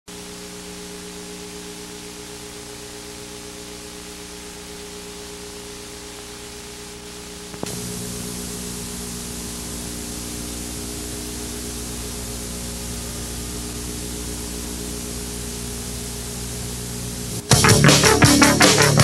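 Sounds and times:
low electrical hum: 0.1 - 19.0
videotape hiss: 0.1 - 19.0
click: 7.5 - 7.8.

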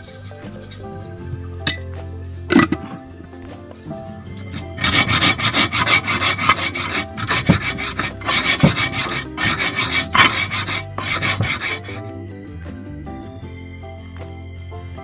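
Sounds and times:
soft background music: 0.0 - 15.0
stone pestle grinding on mortar: 2.5 - 3.0, 4.3 - 12.1.

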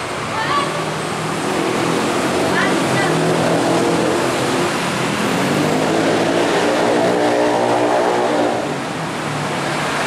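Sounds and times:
locomotive diesel engines: 0.0 - 10.0.

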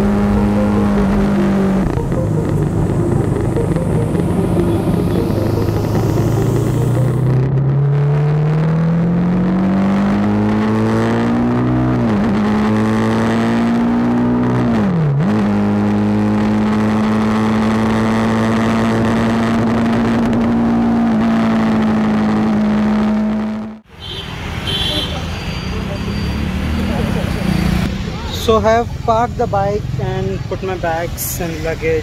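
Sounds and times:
motorcycle engine accelerating: 0.0 - 23.9.

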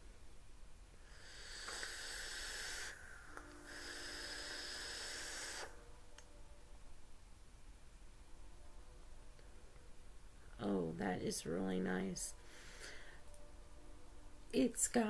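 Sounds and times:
e-cigarette hissing draw: 1.1 - 5.9.

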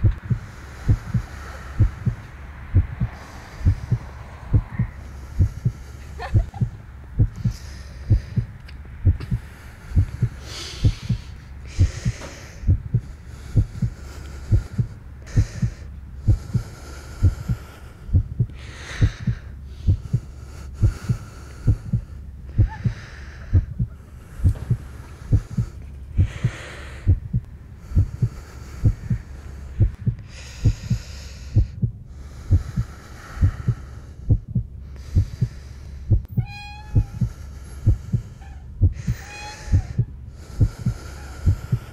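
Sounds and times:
heartbeat thumps: 0.0 - 41.9
heavy breathing: 0.0 - 41.9.

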